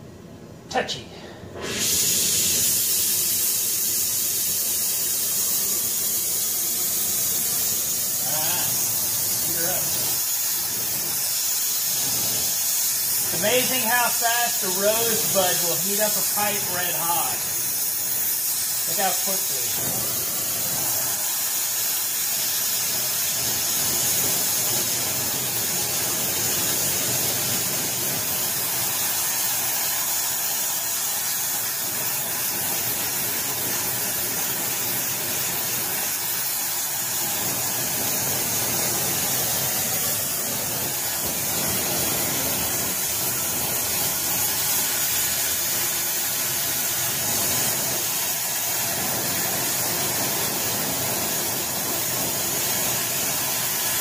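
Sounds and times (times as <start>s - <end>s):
torch flame hissing: 1.4s - 54.0s.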